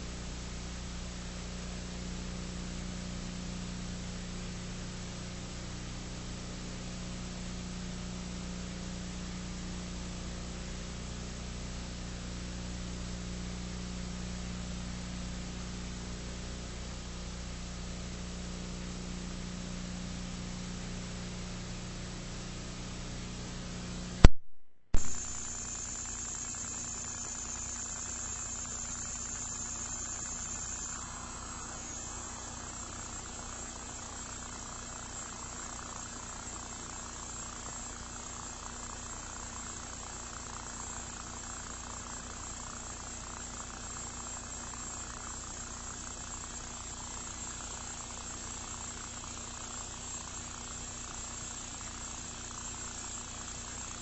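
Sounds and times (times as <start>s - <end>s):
mains hum: 0.0s - 54.0s
sharp pops: 24.2s - 25.3s
thin high whine: 25.0s - 54.0s
videotape hiss: 25.0s - 54.0s.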